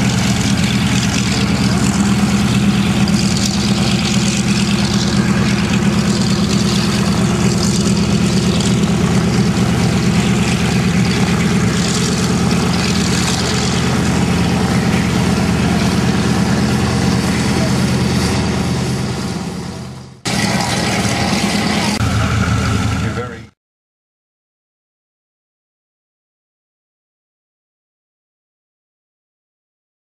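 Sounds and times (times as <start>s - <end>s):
radial engine droning: 0.0s - 23.5s.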